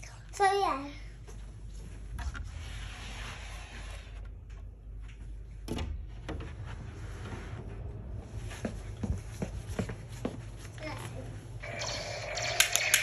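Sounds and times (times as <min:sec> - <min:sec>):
door being handled: 0:05.6 - 0:06.6.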